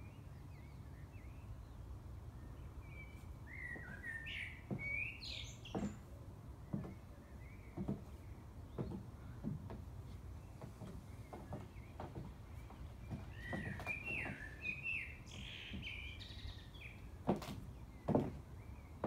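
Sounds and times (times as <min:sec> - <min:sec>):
high heels tapping on wooden decking: 0:03.6 - 0:19.0
metal patio chair being handled: 0:05.6 - 0:07.0
sharp knocks: 0:05.7 - 0:06.1, 0:07.8 - 0:09.9
small bird chirping: 0:10.4 - 0:17.1.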